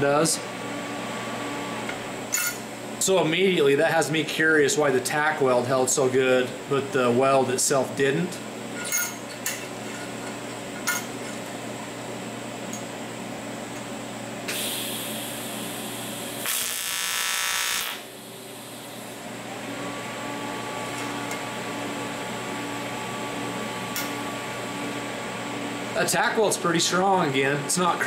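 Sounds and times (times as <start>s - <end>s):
welding hiss: 14.5s - 19.1s
welding arc buzz: 14.5s - 19.2s.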